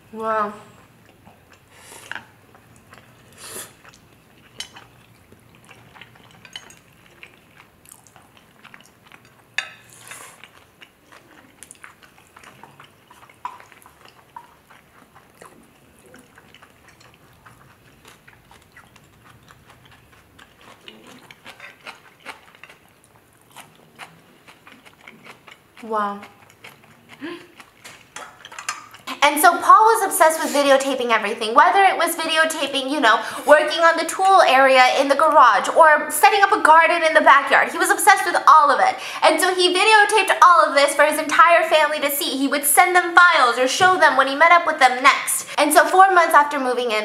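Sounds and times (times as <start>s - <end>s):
chewing noodles and steak: 0.7s - 31.0s
chopsticks clicking against dish: 27.8s - 29.0s.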